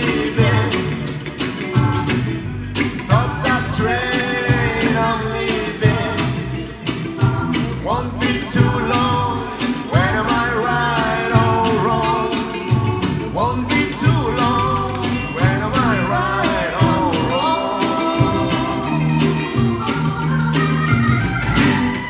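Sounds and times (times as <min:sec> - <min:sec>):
live reggae band playing: 0:00.0 - 0:22.0.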